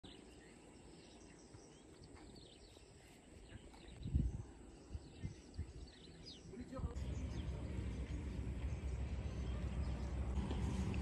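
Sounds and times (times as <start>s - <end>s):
bird chirps: 0.0s - 10.4s
wind rumble on microphone: 3.4s - 6.2s.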